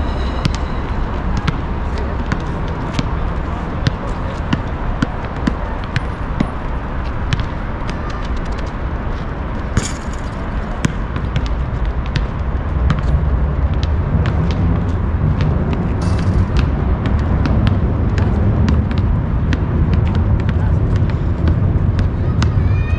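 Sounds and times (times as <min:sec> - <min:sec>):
low rumble: 0:00.0 - 0:03.8
basketball bouncing on asphalt: 0:01.4 - 0:08.7, 0:09.6 - 0:22.6.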